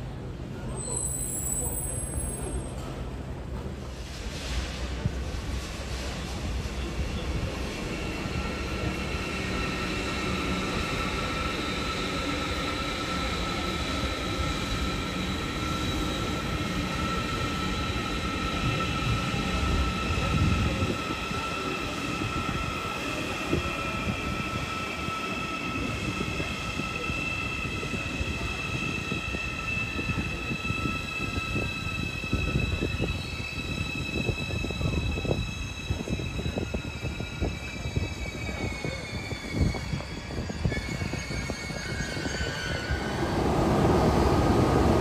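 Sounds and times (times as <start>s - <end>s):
train high whine: 5.9s - 45.0s.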